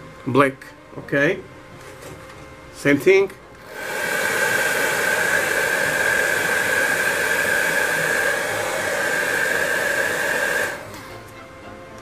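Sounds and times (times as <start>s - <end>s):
hair dryer blowing: 3.6s - 11.3s.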